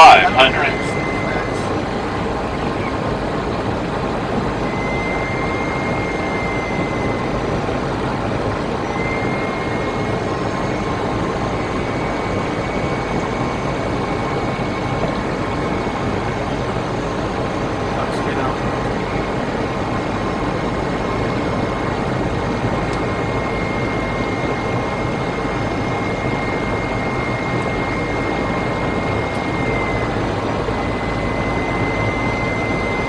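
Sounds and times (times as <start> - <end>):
faint thin tone: 0.0 - 1.8
airflow and engine noise in cockpit: 0.0 - 33.0.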